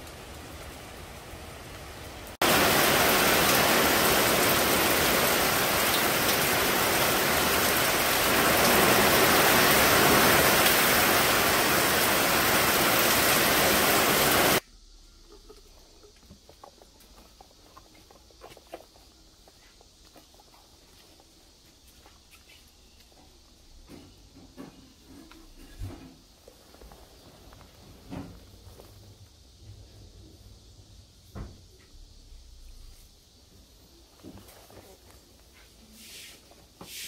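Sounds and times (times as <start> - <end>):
heavy rain on a roof: 0.0 - 14.6
faint scattered ticks: 14.6 - 24.3.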